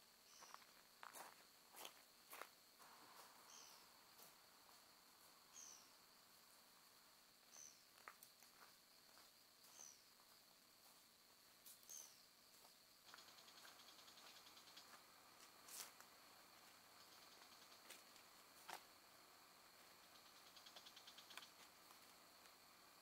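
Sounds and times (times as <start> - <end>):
high insect trill: 0.0 - 23.0
faint clicks: 20.6 - 22.6.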